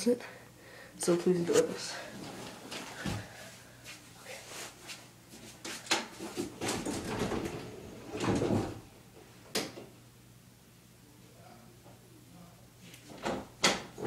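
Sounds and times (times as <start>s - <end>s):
closet door sliding and knocking: 5.9s - 8.9s, 13.1s - 14.0s.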